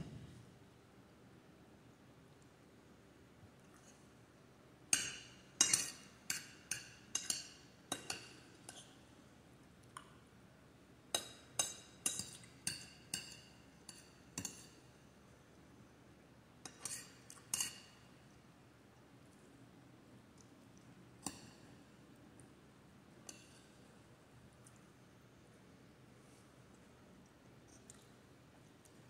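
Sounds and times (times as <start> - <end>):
metal spoon clinking on glass bowl: 4.9 - 8.3.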